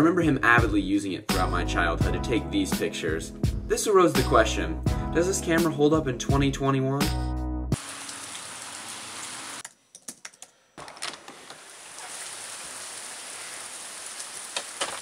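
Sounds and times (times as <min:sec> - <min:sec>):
rain falling: 0:07.8 - 0:09.6, 0:11.2 - 0:15.0.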